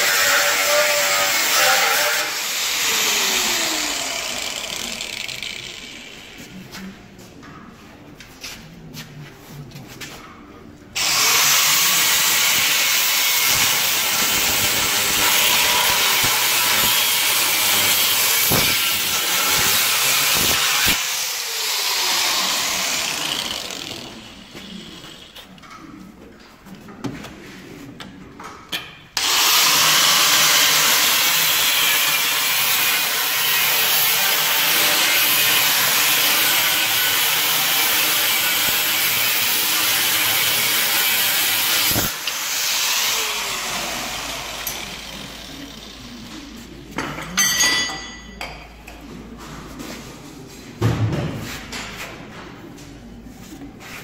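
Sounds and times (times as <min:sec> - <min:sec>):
angle grinder cutting steel: 0:00.0 - 0:06.6, 0:11.0 - 0:25.4, 0:29.2 - 0:46.5.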